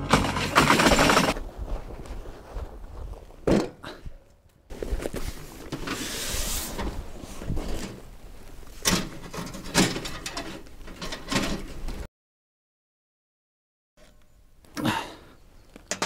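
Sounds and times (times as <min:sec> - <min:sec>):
camp gear rustling: 0:00.6 - 0:12.1
camp gear knocks: 0:03.4 - 0:03.8.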